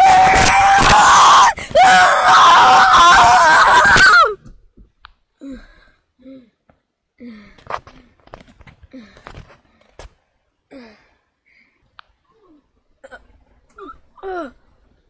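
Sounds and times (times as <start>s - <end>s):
children screaming: 0.0s - 4.4s.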